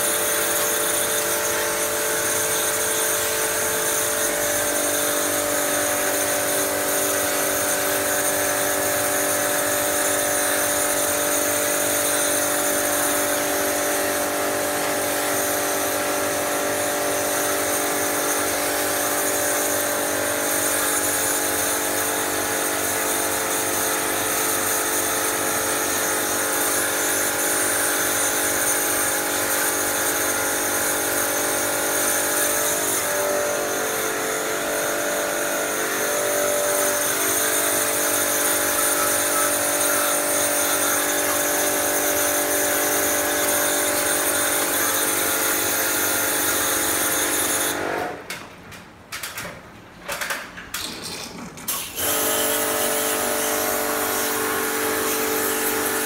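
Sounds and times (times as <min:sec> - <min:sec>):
pressure washer motor humming: 0:00.0 - 0:18.2, 0:29.7 - 0:48.0, 0:51.7 - 0:56.0.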